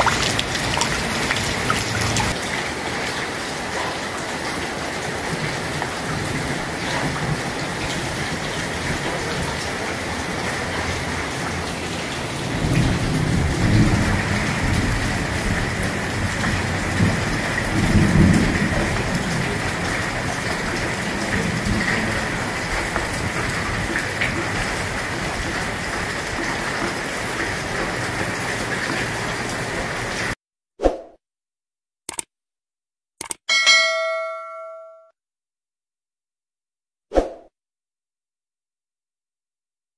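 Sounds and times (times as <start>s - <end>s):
rain on wet paving: 0.0s - 30.4s.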